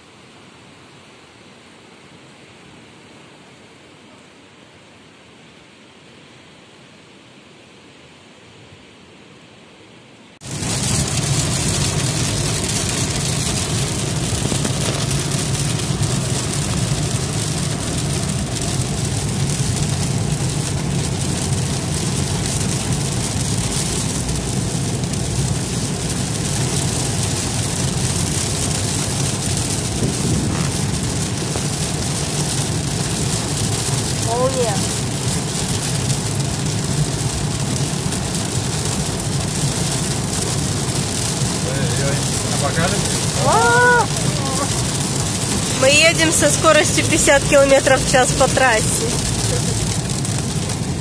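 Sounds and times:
engine and tyres on wet road: 10.4s - 51.0s
heavy rain drumming on car: 10.4s - 51.0s.

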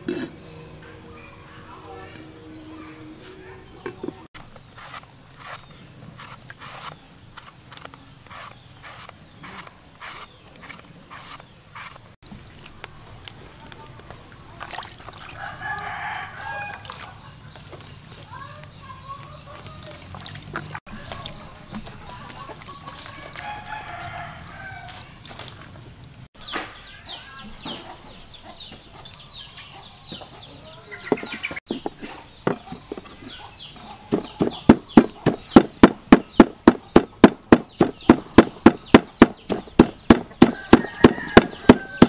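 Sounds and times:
chickens clucking and crowing: 20.6s - 25.2s, 26.8s - 42.0s
knife chopping on cutting board: 34.1s - 42.0s.

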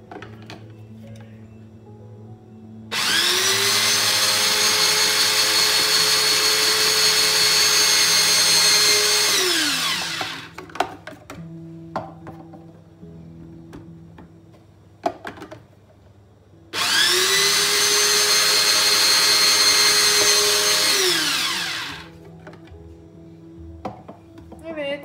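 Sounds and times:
electric slicer motor whining: 2.9s - 10.5s, 16.8s - 22.2s.

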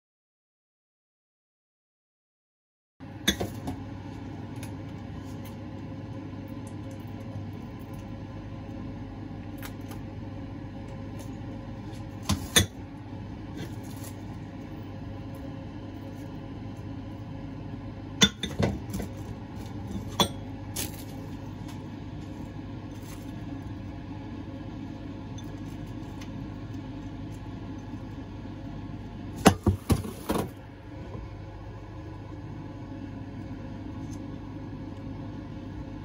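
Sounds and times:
steady low hum: 3.0s - 36.0s
ceramic bowls clinking: 19.8s - 20.5s.

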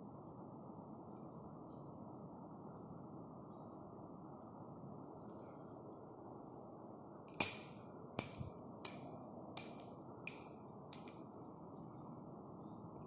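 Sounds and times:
sharp clicks: 7.3s - 11.6s.

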